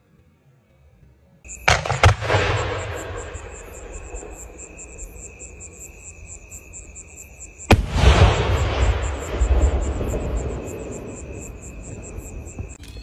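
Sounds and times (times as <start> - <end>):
insects chirping: 1.5 - 13.0
firework mortar launch rumble: 1.6 - 4.6, 7.7 - 11.1.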